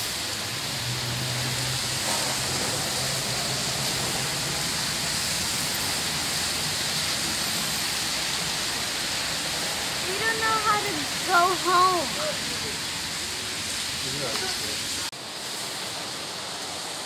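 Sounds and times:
traffic engine hum: 0.0 - 15.1
heavy rain falling: 0.0 - 17.0.

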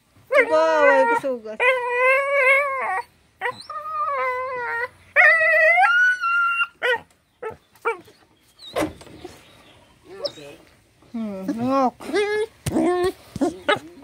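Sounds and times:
dog howling and whining: 0.3 - 7.1
dog yipping: 0.3 - 8.2.

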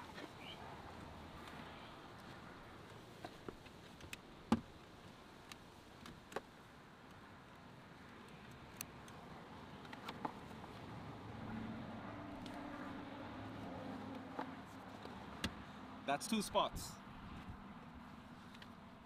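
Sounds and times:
wind and traffic rush: 0.0 - 19.0.

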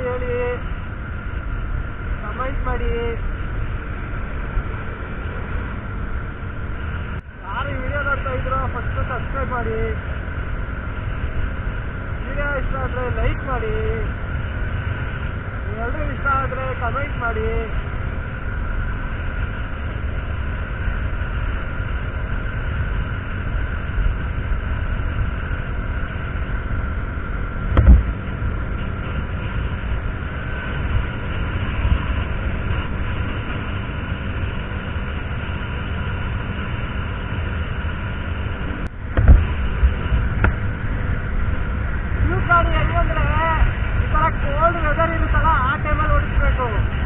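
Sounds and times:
motorcycle engine cruising: 0.0 - 47.0
wind rushing over microphone: 0.0 - 47.0
loud low thumps: 27.6 - 28.8, 38.9 - 42.1.

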